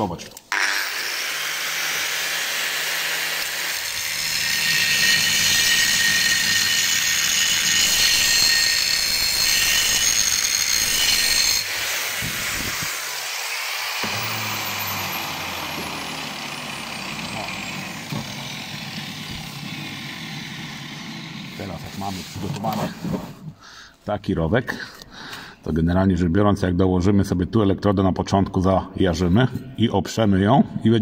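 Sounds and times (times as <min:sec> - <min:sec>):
angle grinder grinding steel: 0:00.5 - 0:23.2
motor winding down whine: 0:08.9 - 0:21.6.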